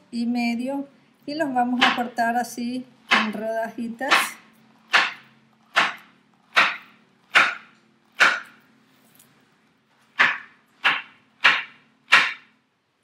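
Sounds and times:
knife chopping on cutting board: 3.1s - 3.4s, 4.0s - 8.6s, 10.1s - 12.5s.

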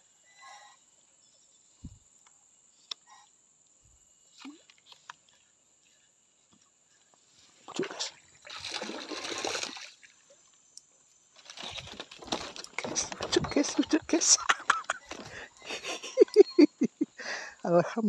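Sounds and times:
river water splashing: 7.7s - 10.6s
clicks and rustles: 11.4s - 15.4s.

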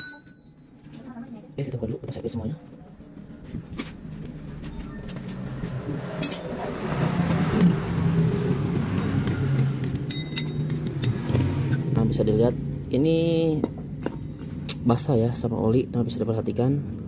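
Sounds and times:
light metal clinks: 10.1s - 11.1s.

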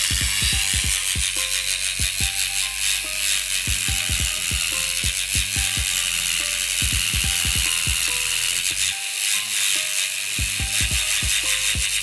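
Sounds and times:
music with thumping beat: 0.0s - 12.0s
rotary tool grinding whine: 0.0s - 12.0s.

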